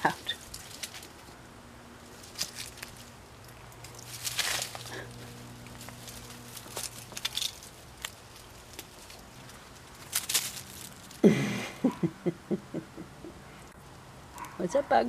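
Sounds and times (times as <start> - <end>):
dry leaves rustling and crackling: 0.0 - 11.4
person chuckling softly: 11.2 - 13.6.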